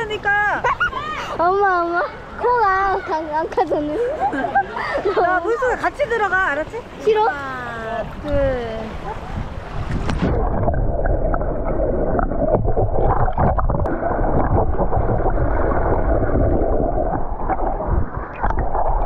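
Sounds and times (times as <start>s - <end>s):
muffled underwater sloshing and bubbling: 7.9s - 19.0s.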